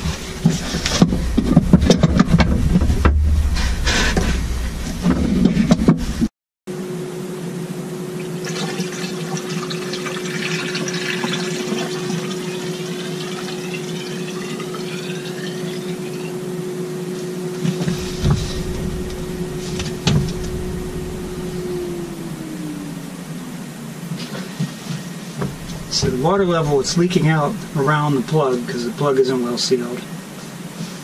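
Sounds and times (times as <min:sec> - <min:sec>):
thumps: 0:00.0 - 0:06.3, 0:17.8 - 0:23.7, 0:25.4 - 0:28.2
steady hum: 0:00.0 - 0:08.4, 0:14.6 - 0:30.4.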